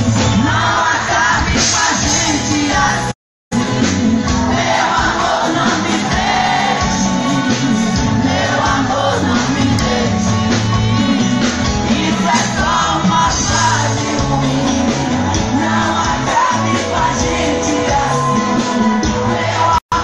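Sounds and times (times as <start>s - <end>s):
live band music: 0.0s - 20.0s
crowd shouting: 4.4s - 7.4s, 15.0s - 20.0s.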